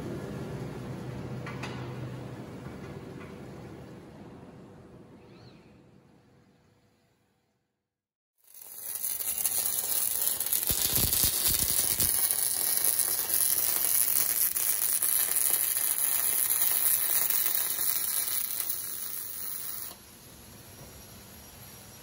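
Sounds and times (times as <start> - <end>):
welding arc crackling hiss: 8.4 - 22.0.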